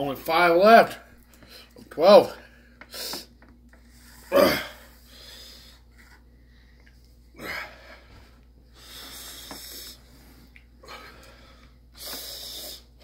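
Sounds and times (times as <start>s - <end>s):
man breathing hard: 4.0s - 6.8s, 7.4s - 13.0s.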